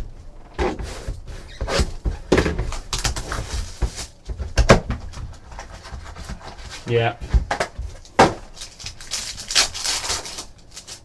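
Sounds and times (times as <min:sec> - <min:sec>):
boxes knocking on tabletop: 0:01.8 - 0:05.4
wrappers crinkling: 0:07.9 - 0:11.0.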